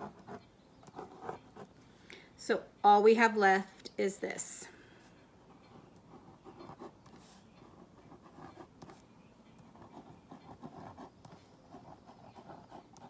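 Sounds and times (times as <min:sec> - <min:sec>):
ballpoint pen scratching on card: 0:09.6 - 0:13.0.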